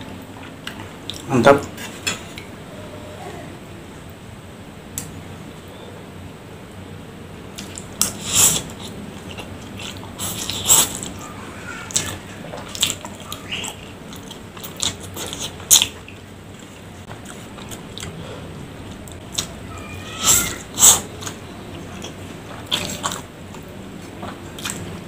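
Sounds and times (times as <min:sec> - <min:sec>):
man slurping and chewing noodles: 0:07.6 - 0:11.3, 0:18.8 - 0:25.0.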